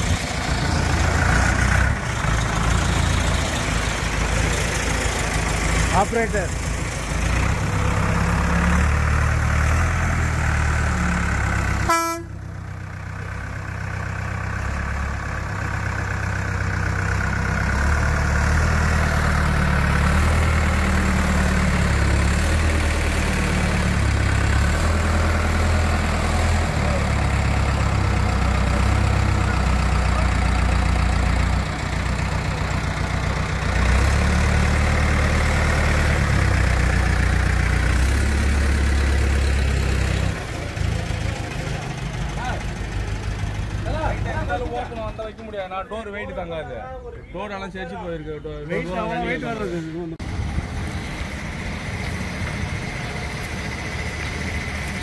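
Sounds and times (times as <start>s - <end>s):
crane diesel engine running: 0.0s - 45.6s, 50.2s - 55.0s
short horn toot: 11.9s - 12.4s.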